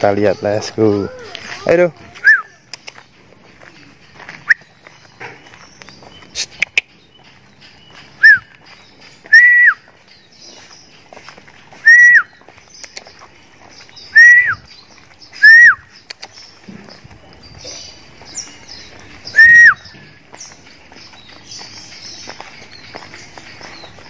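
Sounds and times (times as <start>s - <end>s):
whistled calls: 2.2s - 2.7s, 4.3s - 10.7s, 11.7s - 13.3s, 13.9s - 24.0s.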